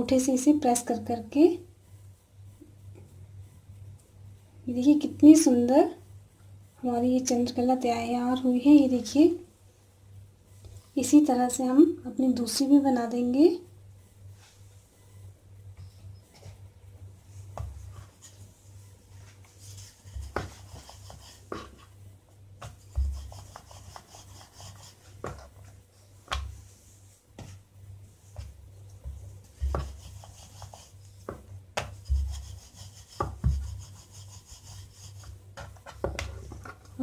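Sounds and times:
rolling pin rolling over dough: 17.3 - 37.0.

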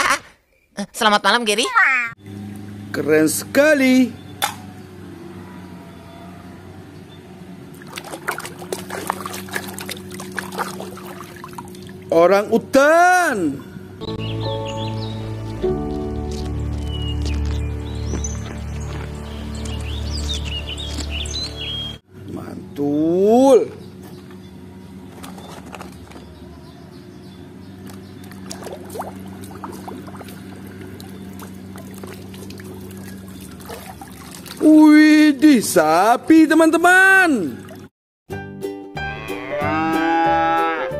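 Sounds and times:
steady low hum: 2.2 - 34.6
hand splashing in water: 7.8 - 12.0, 28.4 - 34.7.

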